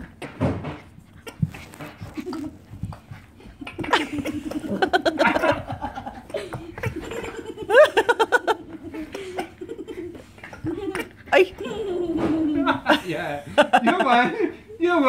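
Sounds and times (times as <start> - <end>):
person laughing: 3.6 - 14.4.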